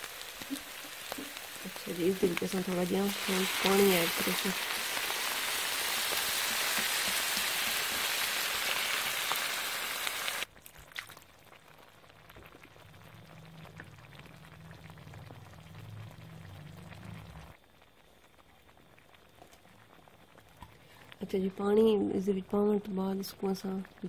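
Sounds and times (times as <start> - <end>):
food sizzling in oil: 0.0 - 10.5.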